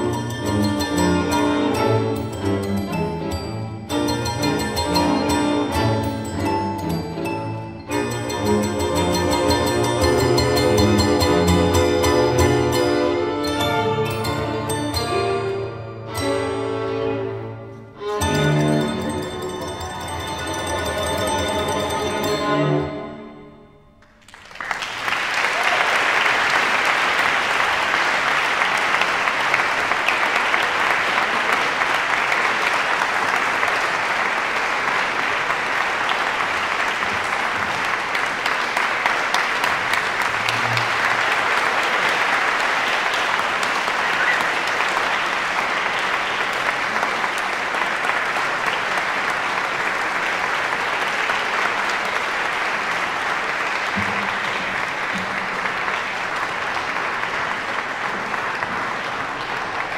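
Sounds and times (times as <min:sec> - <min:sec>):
audience applauding: 0:24.0 - 0:59.9.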